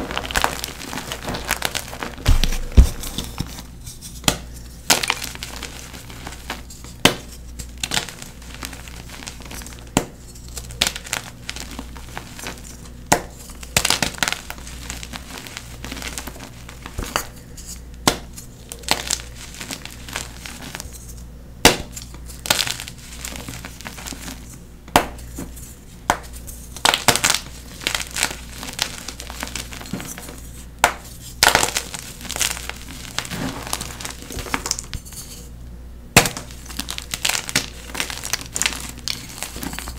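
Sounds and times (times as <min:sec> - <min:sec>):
chalk blocks crunching: 0:25.2 - 0:35.5, 0:36.2 - 0:39.9.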